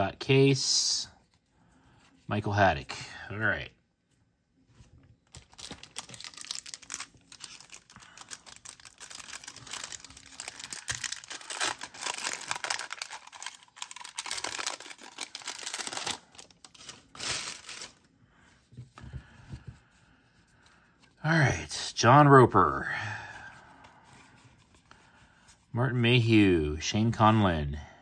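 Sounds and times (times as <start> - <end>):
foil wrapper crinkling and tearing: 5.3 - 18.1.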